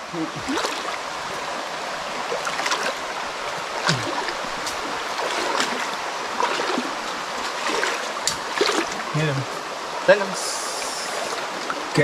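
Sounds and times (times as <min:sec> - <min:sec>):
creek water running: 0:00.0 - 0:12.0
small splashes and knocks: 0:00.4 - 0:01.4, 0:02.1 - 0:03.1, 0:03.8 - 0:09.5.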